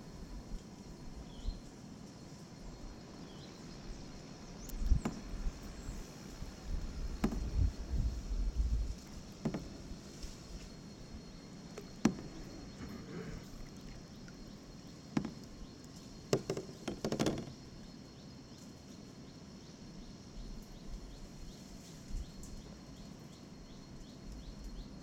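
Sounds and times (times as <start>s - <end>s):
high insect drone: 0.0s - 25.0s
paddle knocking against hull: 4.9s - 5.4s, 7.1s - 8.1s, 8.9s - 10.2s, 11.7s - 14.4s, 15.1s - 17.6s.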